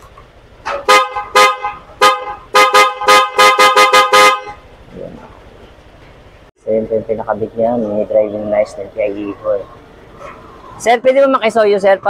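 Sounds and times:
scooter horn toots: 0:00.7 - 0:04.6.

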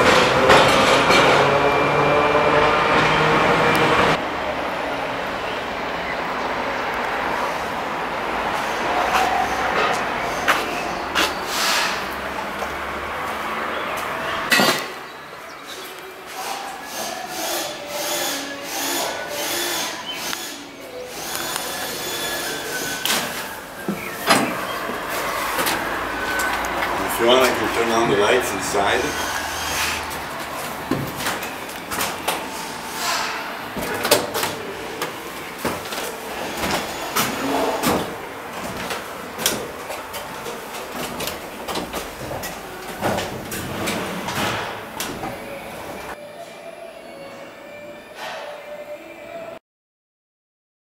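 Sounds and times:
workshop hiss: 0:07.3 - 0:12.3, 0:16.1 - 0:39.4.

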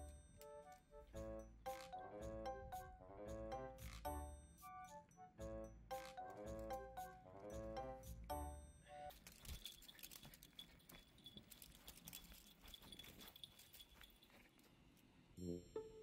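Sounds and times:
background music: 0:00.0 - 0:09.2, 0:15.4 - 0:16.0.

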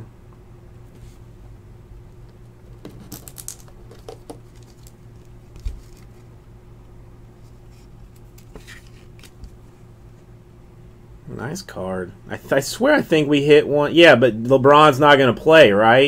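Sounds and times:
steady low hum: 0:00.0 - 0:16.0
card and plastic scratching: 0:02.7 - 0:06.2, 0:07.5 - 0:09.6.

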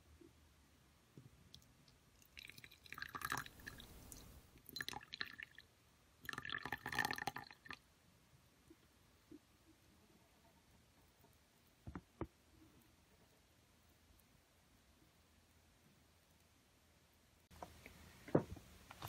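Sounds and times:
tea trickling into glass cup: 0:02.2 - 0:05.6, 0:06.2 - 0:07.8.

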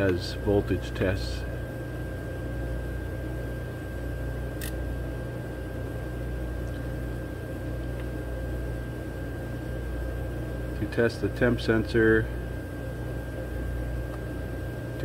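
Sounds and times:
low mechanical hum: 0:00.0 - 0:15.0
sharp click: 0:04.6 - 0:04.8.

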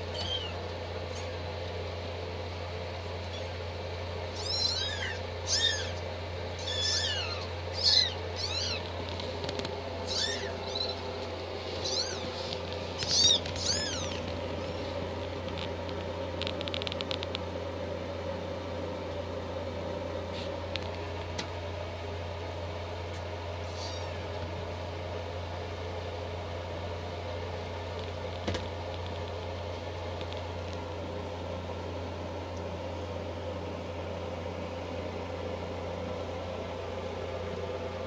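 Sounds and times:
kittens mewing: 0:00.0 - 0:01.5, 0:04.3 - 0:15.0, 0:23.6 - 0:24.6
steady low hum: 0:00.0 - 0:38.0.

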